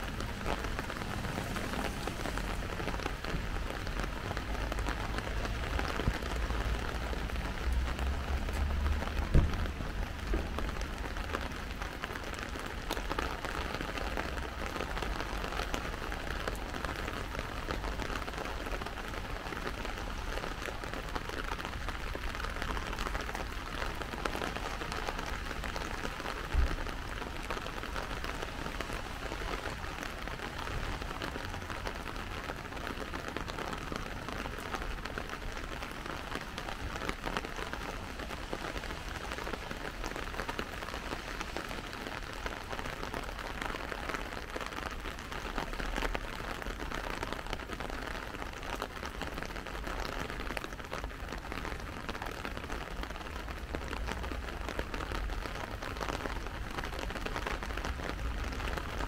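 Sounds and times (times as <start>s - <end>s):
steady rain falling: 0.0s - 59.0s
low thump: 9.3s - 9.7s.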